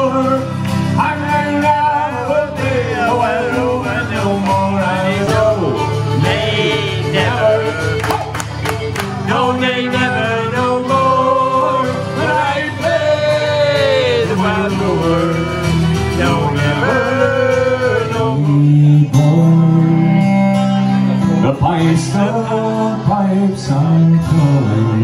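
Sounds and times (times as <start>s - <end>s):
acoustic guitar: 0.0s - 25.0s
man singing: 0.0s - 25.0s
hand claps: 7.8s - 9.3s.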